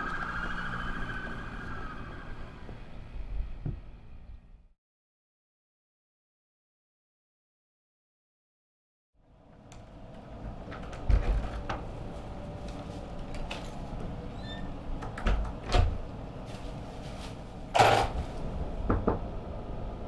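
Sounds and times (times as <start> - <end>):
door opening and shutting: 10.3 - 11.9, 13.4 - 16.1, 17.7 - 18.2.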